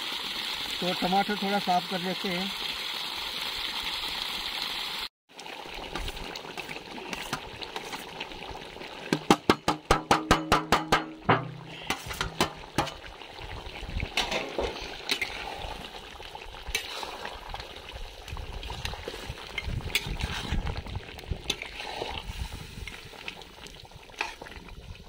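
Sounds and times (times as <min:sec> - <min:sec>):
spatula scraping and knocking pan: 0:09.1 - 0:13.0
food sizzling in a pan: 0:14.2 - 0:20.7.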